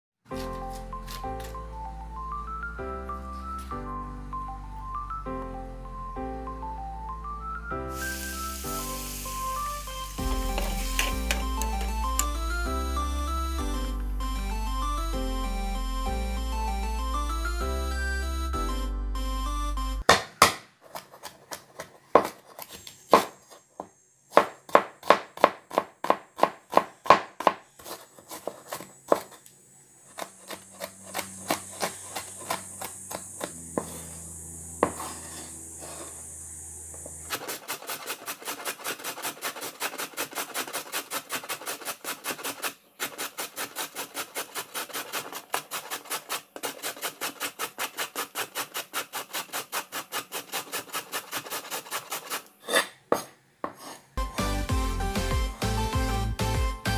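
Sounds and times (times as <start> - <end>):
carrot grated on metal grater: 10.2 - 11.5, 37.3 - 52.9
cleaver chopping on wooden board: 20.0 - 22.4, 23.1 - 23.4, 24.3 - 29.3, 30.2 - 34.1, 34.8 - 35.2.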